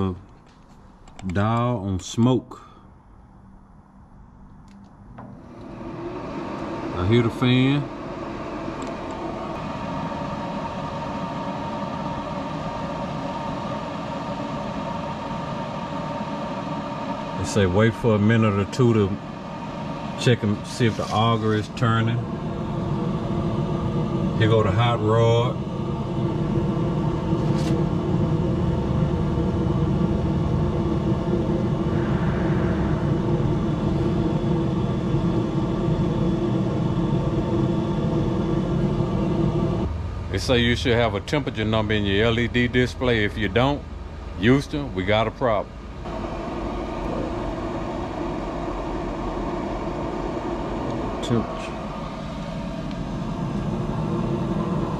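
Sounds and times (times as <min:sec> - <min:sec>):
grill fan humming with whine: 0:00.0 - 0:54.9
low rumble: 0:25.6 - 0:44.4.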